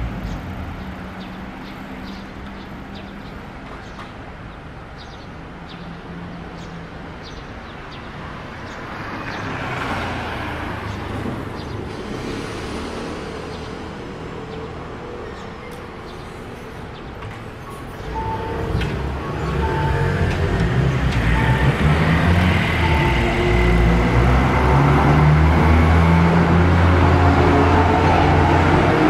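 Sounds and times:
vehicle passing by: 18.2s - 29.0s.

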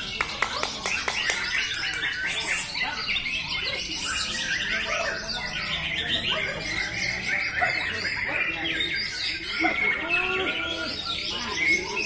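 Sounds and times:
caged birds singing in chorus: 0.0s - 12.0s.

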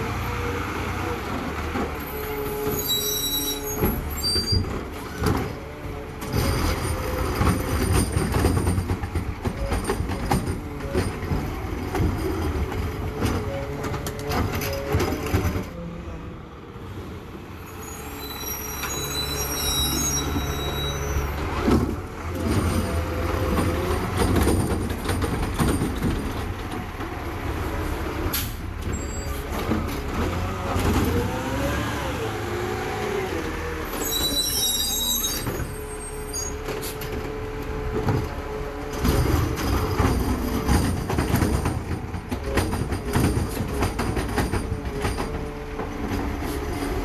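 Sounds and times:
high squeals: 2.3s - 4.6s, 17.7s - 21.4s, 33.9s - 36.7s.

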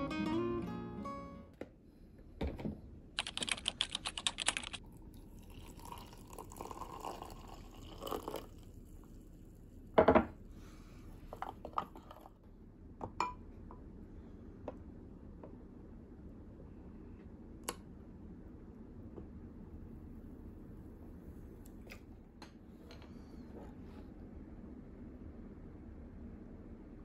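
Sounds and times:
rapid small clicks: 3.2s - 4.8s
hot water pouring into a glass mug: 4.8s - 9.7s.

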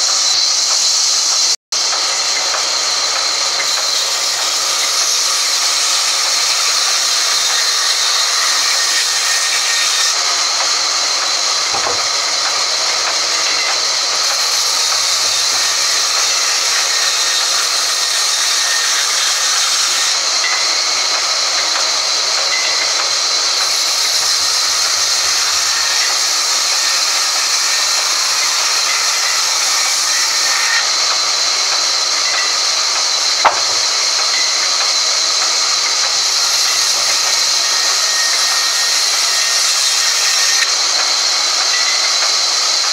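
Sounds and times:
band saw cutting log: 0.0s - 42.9s
sharp click: 33.4s - 34.4s.

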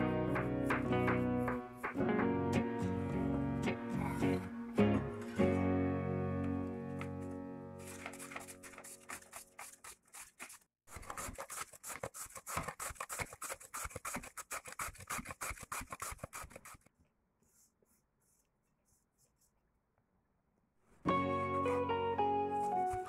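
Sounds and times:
carrot grating rasps: 7.8s - 16.9s.

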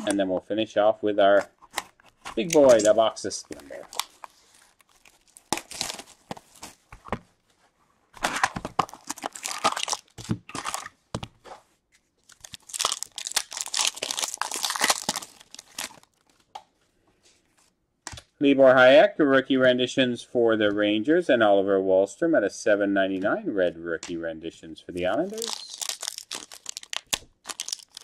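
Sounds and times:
card wrappers tearing and crinkling: 1.7s - 6.8s, 8.2s - 11.0s, 12.2s - 16.4s, 25.1s - 28.0s.

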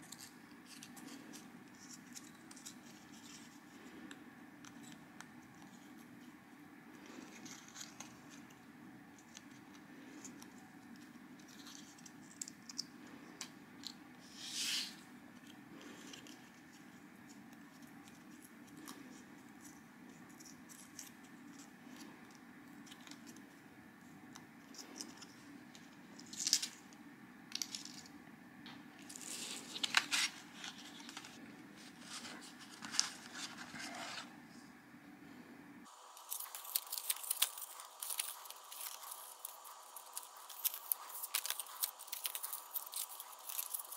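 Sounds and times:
steady low hum: 0.0s - 43.9s
card crinkling in fingers: 29.0s - 34.2s, 35.9s - 43.9s.

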